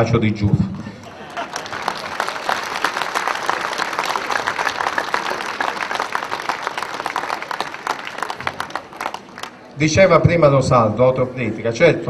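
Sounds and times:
crowd applauding: 1.0 - 9.8.

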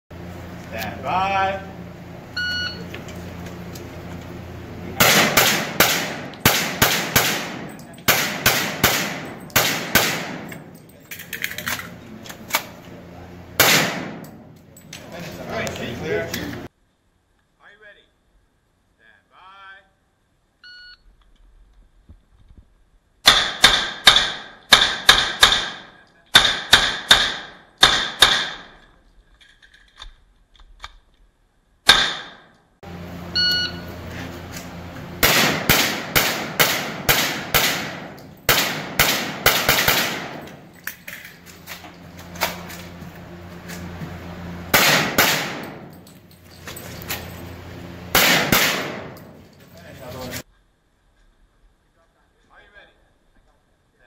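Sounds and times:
shot timer beep: 2.4 - 2.9, 33.3 - 33.9
gunshots with echo: 5.0 - 10.7, 13.6 - 14.4, 35.2 - 40.7, 44.7 - 45.9, 48.1 - 49.4.

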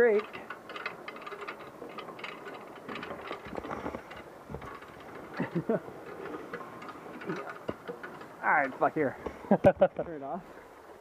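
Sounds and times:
pulley wheels rattling on cable: 0.0 - 9.5
person speaking: 8.4 - 9.2.

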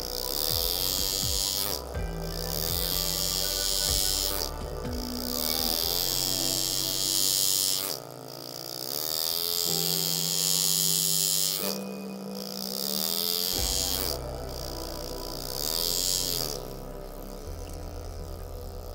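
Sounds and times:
ambient background music: 0.0 - 18.9
engraving tool buzzing on metal: 0.0 - 18.9.

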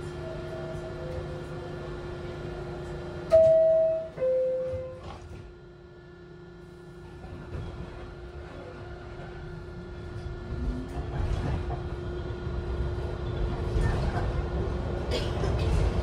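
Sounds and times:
steady train car hum: 0.0 - 16.0
two-note door chime: 3.3 - 5.0.

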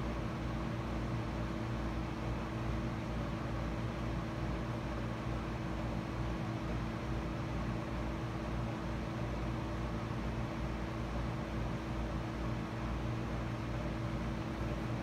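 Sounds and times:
mechanical hum: 0.0 - 15.0.

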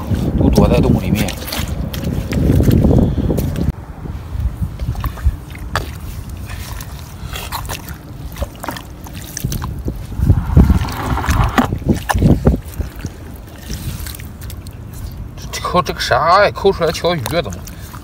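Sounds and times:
hand squelching in wet mud: 4.8 - 15.3.

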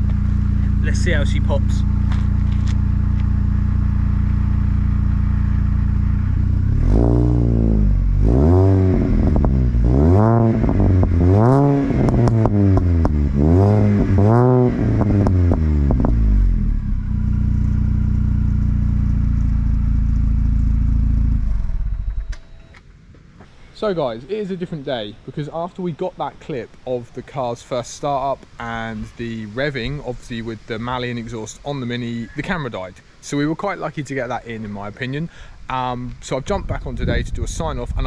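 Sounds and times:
car engine idling and revving: 0.0 - 22.6.

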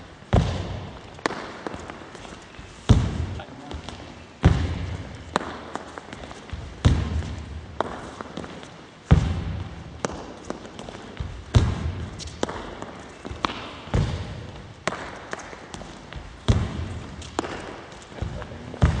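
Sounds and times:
heavy lunge steps thudding: 0.0 - 19.0
shoe and racket taps: 0.3 - 19.0.

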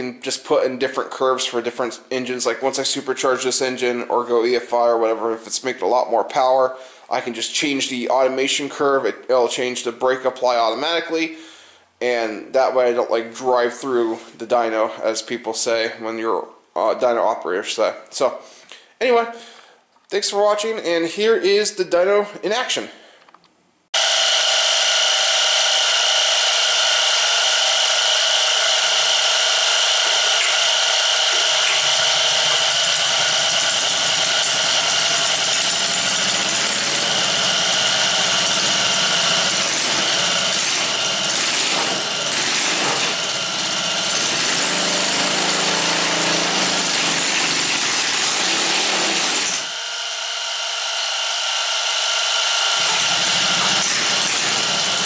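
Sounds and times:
small gasoline engine running: 24.0 - 55.0.

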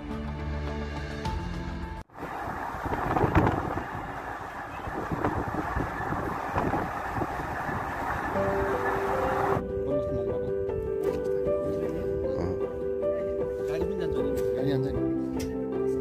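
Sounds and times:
music: 0.0 - 2.1, 8.4 - 16.0
vehicle rumbling and rattling: 2.1 - 9.7.

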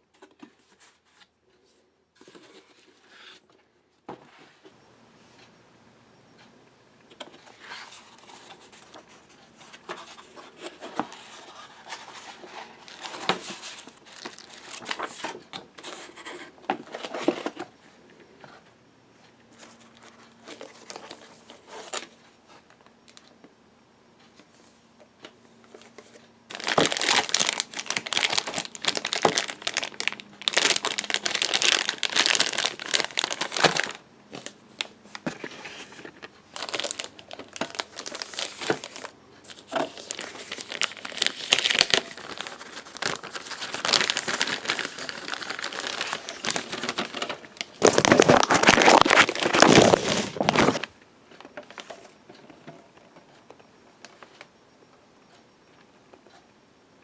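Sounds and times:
plastic and tissue paper crinkling: 7.6 - 17.6, 25.9 - 50.9.

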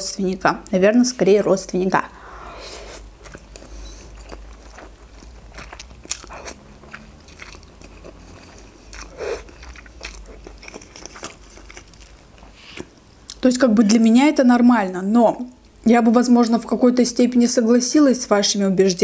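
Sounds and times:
chewing: 2.9 - 13.4.

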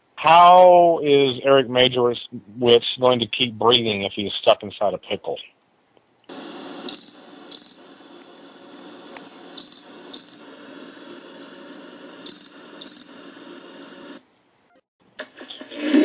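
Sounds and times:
background hiss: 0.0 - 16.0
crickets chirping: 6.3 - 14.1.

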